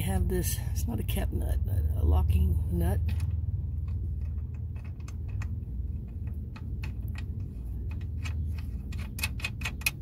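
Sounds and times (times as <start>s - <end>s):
low steady rumble: 0.0s - 10.0s
metal clicks of nut and washers: 3.0s - 10.0s.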